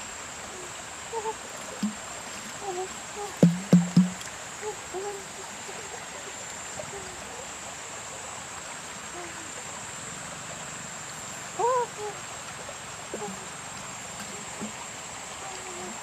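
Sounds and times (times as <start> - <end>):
stream running over rock: 0.0 - 16.0
sharp knock: 3.4 - 4.2.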